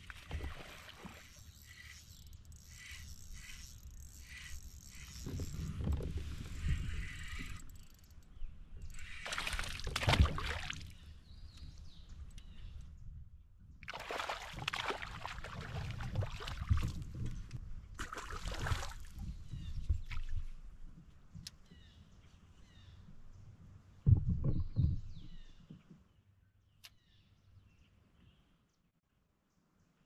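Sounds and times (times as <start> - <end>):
water splashing and sloshing: 0.0 - 2.0, 9.0 - 11.1, 13.8 - 17.4, 18.0 - 20.6.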